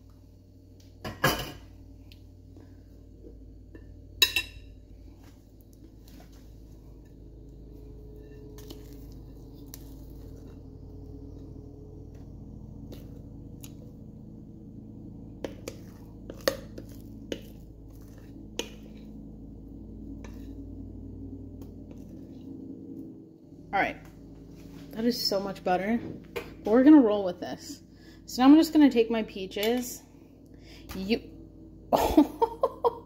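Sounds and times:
steady low hum: 0.0 - 33.0
spoon scooping thick batter: 7.7 - 11.5, 15.4 - 19.2, 20.0 - 20.7, 21.5 - 22.5.

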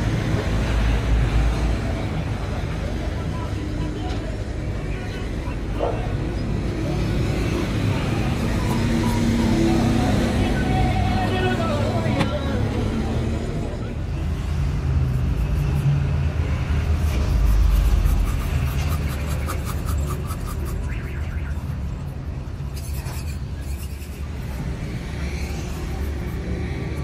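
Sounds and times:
motor vehicles rumbling: 0.0 - 27.0
knife cutting rubber: 16.8 - 27.0.

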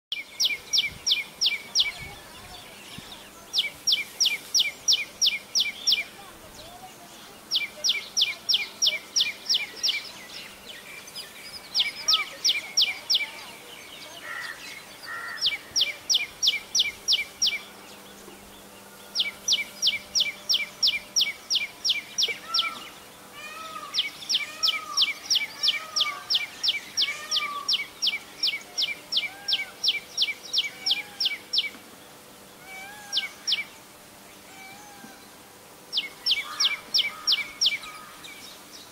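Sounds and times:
soft lower bird chirps: 0.1 - 38.9
bird calling sharp repeated notes: 19.2 - 31.8.

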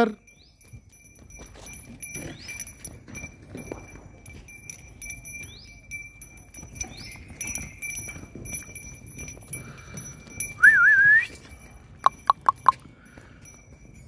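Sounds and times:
birds chirping: 5.2 - 8.6.

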